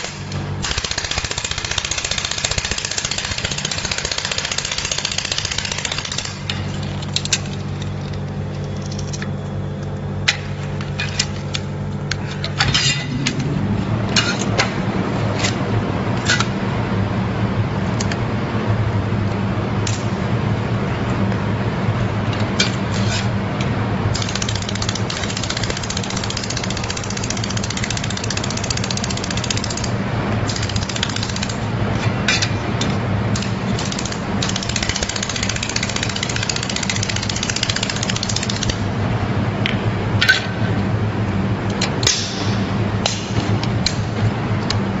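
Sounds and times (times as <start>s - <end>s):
low hum: 6.3s - 26.4s.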